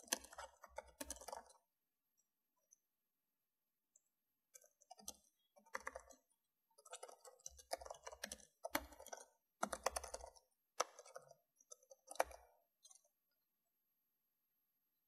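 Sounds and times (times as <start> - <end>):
keyboard typing clicks: 0.0 - 1.6, 4.6 - 13.1.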